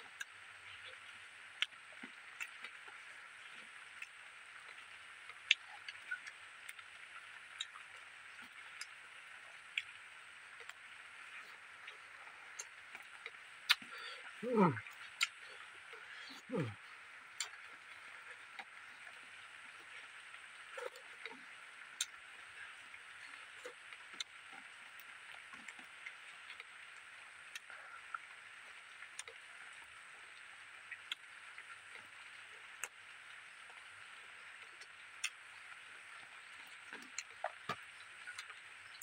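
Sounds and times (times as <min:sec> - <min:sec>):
steady high hiss: 0:02.2 - 0:25.1
wet mouth clicks while chewing: 0:11.8 - 0:14.2, 0:14.8 - 0:16.8, 0:17.4 - 0:17.7, 0:29.2 - 0:29.4, 0:34.8 - 0:35.4, 0:36.7 - 0:39.0.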